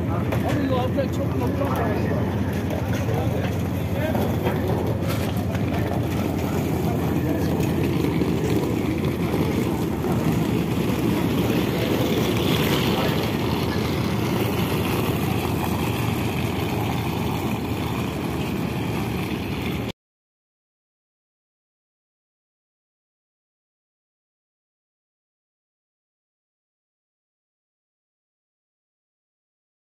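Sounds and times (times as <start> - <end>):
faint crowd noise: 0.0 - 19.8
ferry engines rumbling: 0.0 - 19.9.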